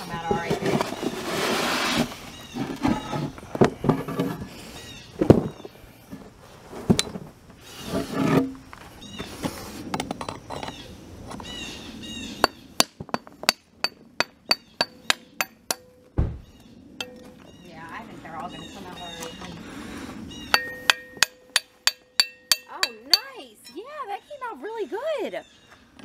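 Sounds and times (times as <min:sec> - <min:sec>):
metal tool clinking: 0:17.0 - 0:17.4, 0:20.5 - 0:23.8.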